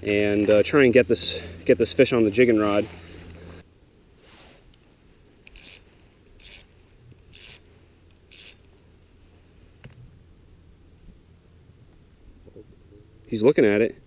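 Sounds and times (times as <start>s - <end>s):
fishing line rasping on reel: 5.4s - 6.7s, 7.3s - 8.7s.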